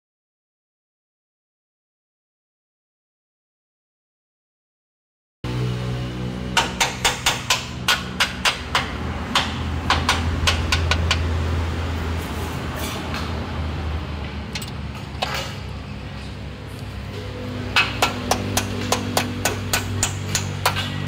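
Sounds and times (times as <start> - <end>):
hammer tapping on metal: 6.6 - 11.3, 17.8 - 21.0.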